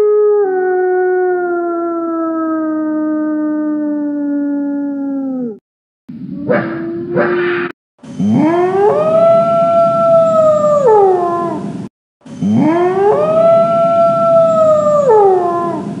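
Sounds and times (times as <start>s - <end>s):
wolf howling: 0.0s - 5.6s, 8.2s - 11.7s, 12.4s - 16.0s.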